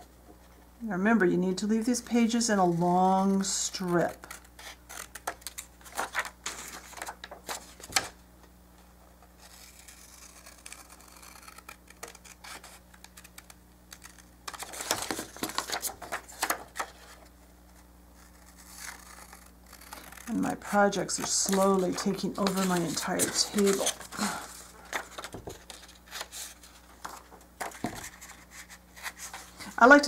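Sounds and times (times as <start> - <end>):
paper rustling: 3.8 - 8.1, 9.5 - 17.2, 21.1 - 30.0
scissors snipping paper: 18.4 - 24.0.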